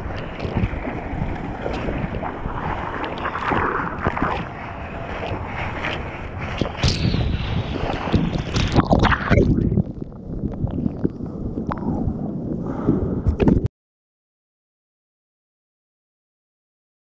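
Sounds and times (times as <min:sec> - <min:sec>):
ocean wave water rushing: 0:00.0 - 0:09.8
wind buffeting microphone: 0:00.0 - 0:13.7.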